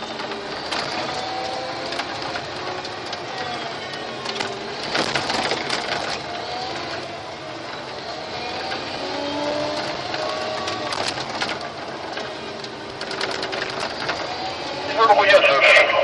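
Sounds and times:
diesel engine running: 0.0 - 16.0
clattering rattle: 4.2 - 14.5.

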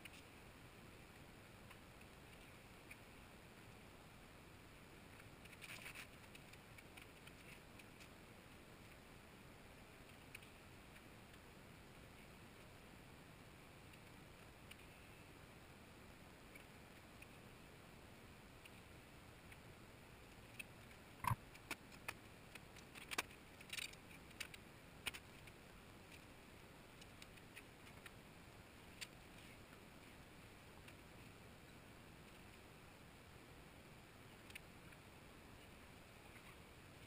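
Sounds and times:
faint steady hiss: 0.0 - 37.0.

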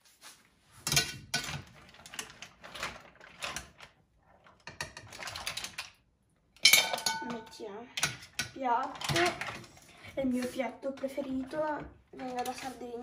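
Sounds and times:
mussel shells clattering in a pan: 0.9 - 6.0, 6.6 - 9.8
utensil scraping a pan: 8.0 - 13.0.

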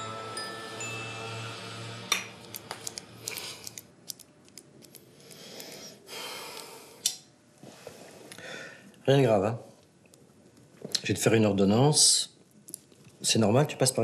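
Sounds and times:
chiming music cue: 0.0 - 2.4.

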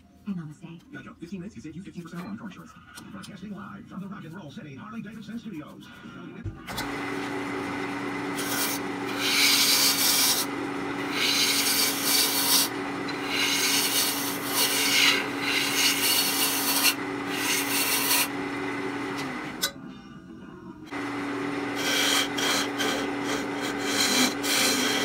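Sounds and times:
wood lathe humming: 6.7 - 19.7, 20.9 - 25.0
turning tool scraping wood: 6.8 - 19.7, 20.9 - 25.0.

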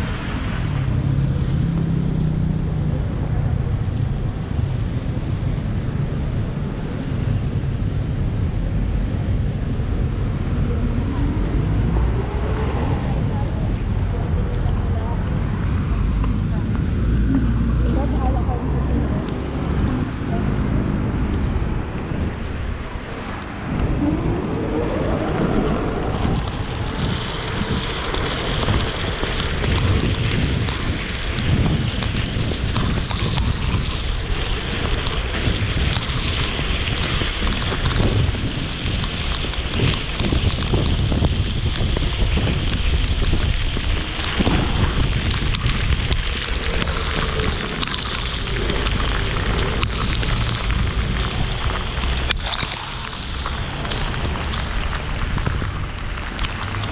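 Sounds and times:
tyres hissing on wet road: 0.0 - 56.9
wind buffeting microphone: 0.0 - 56.9.

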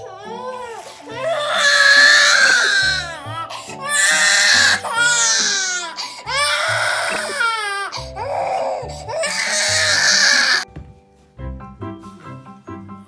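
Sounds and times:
baby crying: 0.0 - 10.7
background music with bass line: 7.2 - 13.0.

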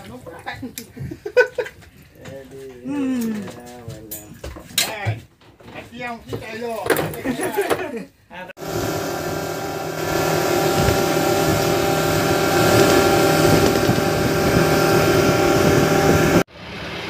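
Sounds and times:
outboard engine running: 8.6 - 16.9
wind rushing: 10.0 - 16.5.

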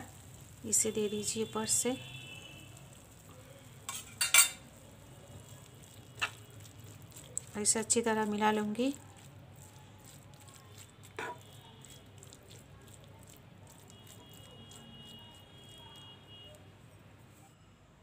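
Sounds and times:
metal spoon stirring curry in pan: 0.1 - 16.6
spoon knocking pan: 3.9 - 4.6, 6.1 - 6.4, 11.0 - 11.6.

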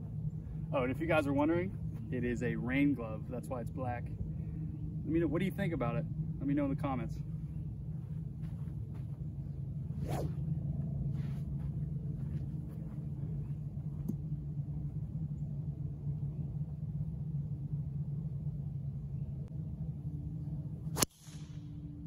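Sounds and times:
low rumble: 0.0 - 22.0
golf club swishing: 8.0 - 14.3.

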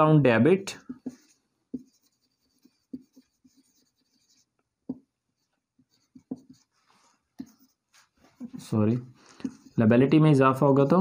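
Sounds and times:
marker scratching on whiteboard: 0.7 - 11.0
marker tip tapping board: 0.8 - 3.9, 6.0 - 6.6.

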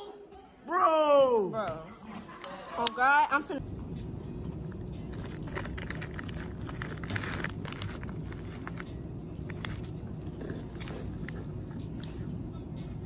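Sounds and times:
plastic bag crinkling: 5.1 - 10.0.

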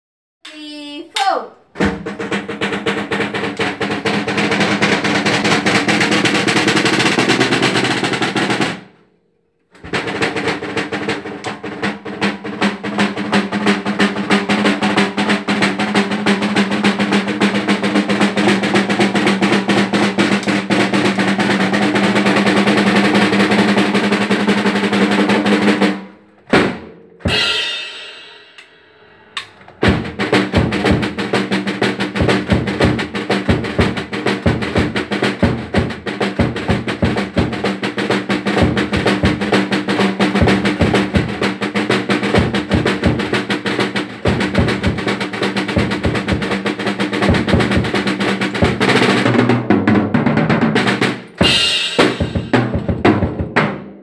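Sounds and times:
snare drum rolls: 1.2 - 9.0, 9.8 - 54.0
tom and bass drum strokes: 1.8 - 8.8, 9.8 - 46.6, 47.2 - 53.7
ringing crash cymbal: 27.3 - 29.4, 51.5 - 52.4.

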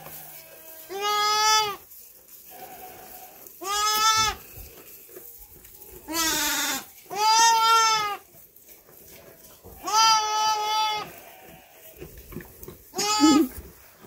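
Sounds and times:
lambs bleating: 0.0 - 1.8, 2.5 - 4.5, 6.0 - 8.3, 9.8 - 12.0, 12.9 - 13.6.

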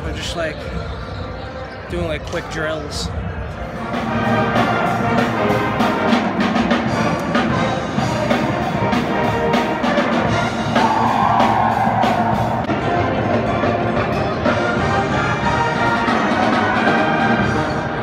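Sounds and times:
brass horns playing: 3.8 - 18.0
steady drum beat: 3.9 - 13.8.

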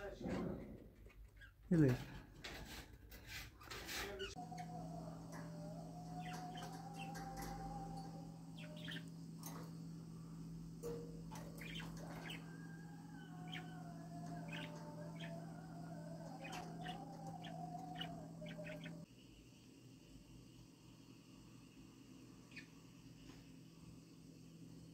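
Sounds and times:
budgerigars chirping and warbling: 4.2 - 9.6, 10.8 - 19.0
steady low hum: 4.3 - 24.9.

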